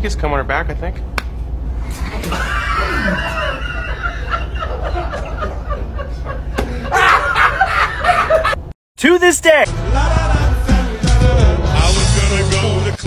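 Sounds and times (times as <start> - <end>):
people laughing hard: 1.9 - 8.7.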